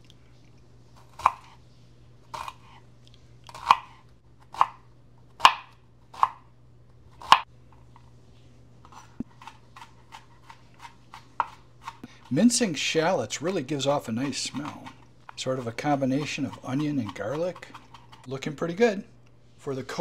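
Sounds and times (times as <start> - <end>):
knife chopping on cutting board: 3.6 - 3.9, 9.3 - 12.3, 13.5 - 18.2.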